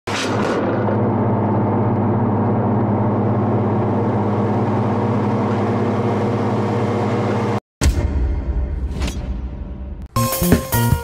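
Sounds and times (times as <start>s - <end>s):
engine humming steadily: 0.1s - 7.6s.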